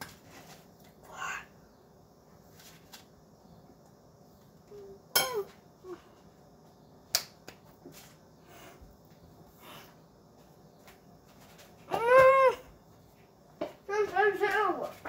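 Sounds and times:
small rustles and taps: 0:10.3 - 0:15.0.

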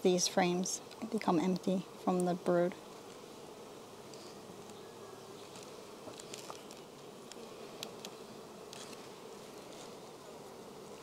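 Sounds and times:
bees humming: 0:00.0 - 0:11.0
faint ticks: 0:05.4 - 0:10.0.

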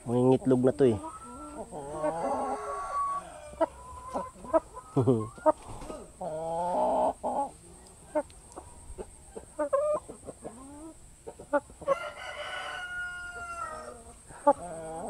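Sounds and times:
hens clucking: 0:00.0 - 0:15.0
rooster crowing: 0:01.7 - 0:03.9, 0:11.8 - 0:15.0.

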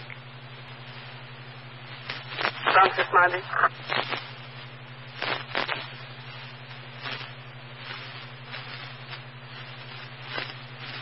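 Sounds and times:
faint crackle: 0:00.0 - 0:11.0
low hum: 0:00.0 - 0:11.0
radio static hiss: 0:00.0 - 0:11.0.

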